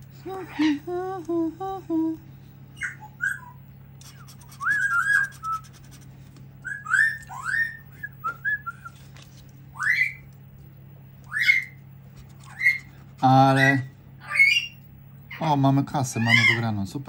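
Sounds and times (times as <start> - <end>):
steady low hum: 0.0 - 17.0
parrot whistling and chirping: 2.8 - 5.8, 6.6 - 9.0, 9.7 - 10.3, 11.3 - 11.8, 12.5 - 12.9, 13.6 - 14.8.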